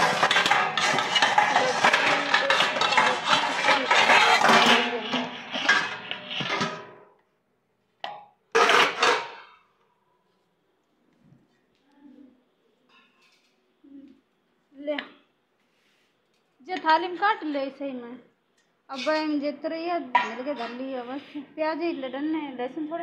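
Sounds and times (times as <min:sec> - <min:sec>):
dishes and utensils clattering: 0:00.0 - 0:07.1, 0:08.6 - 0:09.7, 0:20.1 - 0:21.4.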